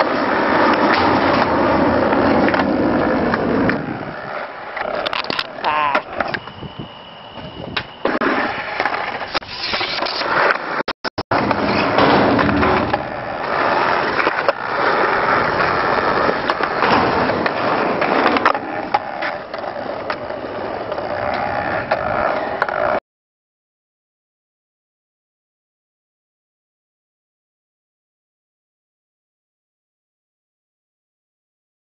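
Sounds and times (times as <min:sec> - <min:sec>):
skateboard deck clacks: 0:00.0 - 0:06.6, 0:07.7 - 0:23.0
skateboard wheels rolling on concrete: 0:00.0 - 0:23.0.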